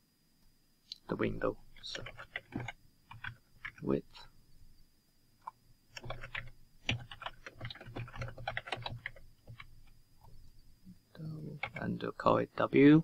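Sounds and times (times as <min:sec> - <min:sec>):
typing on computer keyboard: 0:01.9 - 0:03.8, 0:05.9 - 0:09.7, 0:11.6 - 0:11.9.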